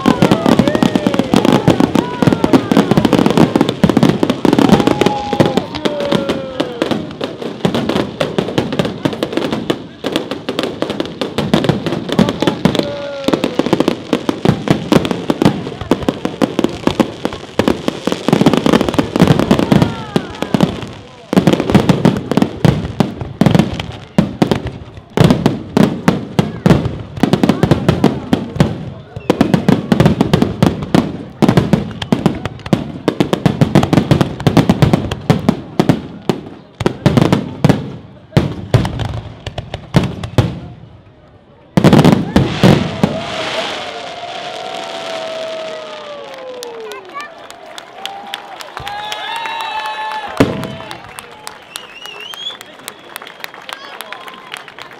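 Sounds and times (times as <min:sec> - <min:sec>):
fireworks bangs and crackles: 0:00.0 - 0:54.9
whistling tones sliding down: 0:50.5 - 0:53.6.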